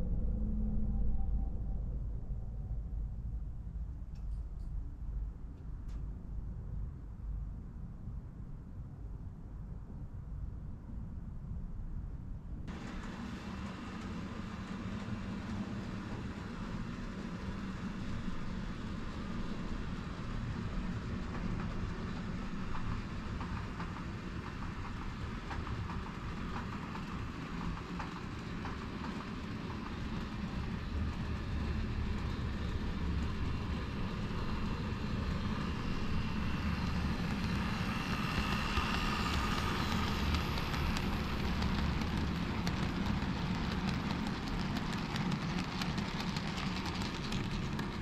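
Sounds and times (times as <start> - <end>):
model train motor hum: 12.7 - 48.0.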